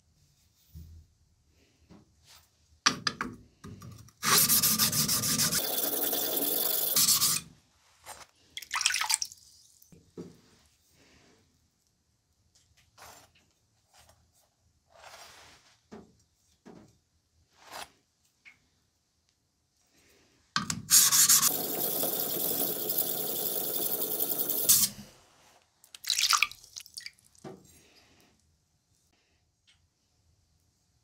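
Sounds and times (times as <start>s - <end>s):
water dripping and splashing: 8.6s - 9.4s, 25.9s - 27.4s.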